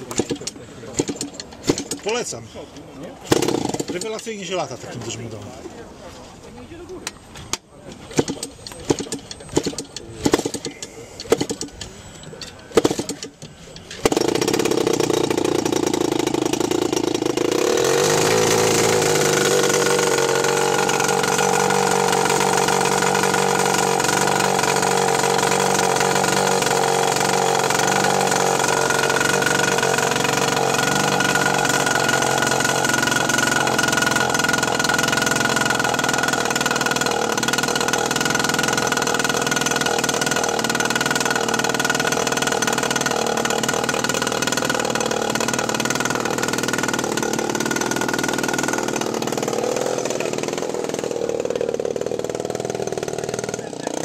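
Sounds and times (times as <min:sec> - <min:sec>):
model airplane engine running: 0:13.1 - 0:54.0.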